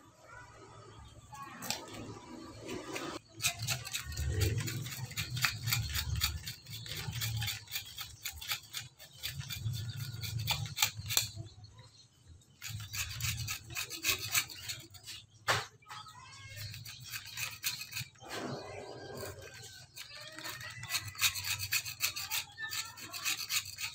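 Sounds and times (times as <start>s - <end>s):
knife scraping coconut husk: 1.6s - 11.5s, 12.5s - 15.4s, 16.5s - 23.9s.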